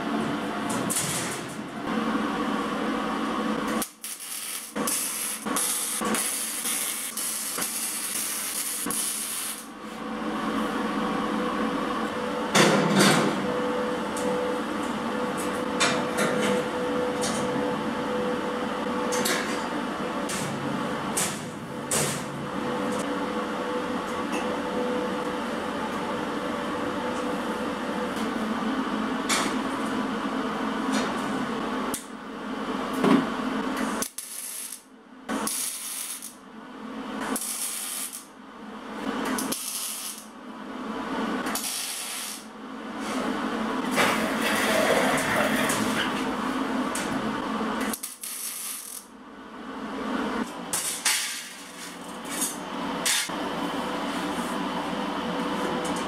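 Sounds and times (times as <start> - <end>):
welding arc: 3.8 - 9.7, 34.0 - 36.4, 37.4 - 38.3, 39.4 - 40.3, 41.6 - 42.5, 47.9 - 49.1.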